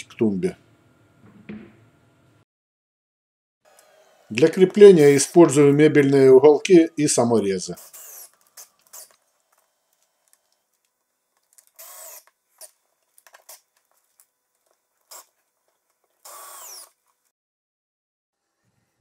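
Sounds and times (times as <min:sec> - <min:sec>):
cordless drill whirring: 0:07.8 - 0:10.4, 0:11.6 - 0:12.8, 0:15.1 - 0:15.3, 0:16.2 - 0:17.0.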